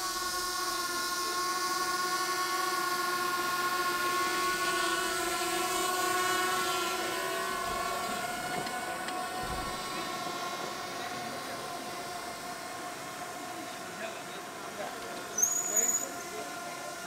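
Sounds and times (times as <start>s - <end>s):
droning tone with overtones: 0.0s - 17.0s.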